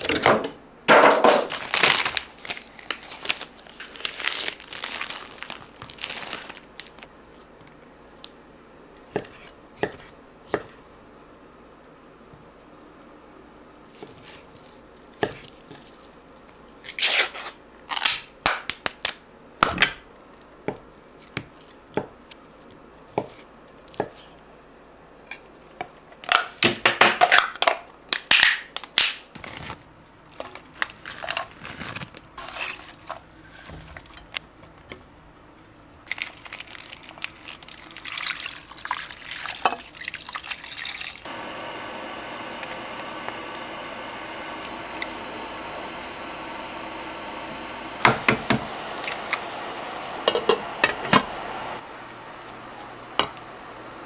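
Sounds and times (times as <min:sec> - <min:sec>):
steady hum: 0:41.3 - 0:54.0.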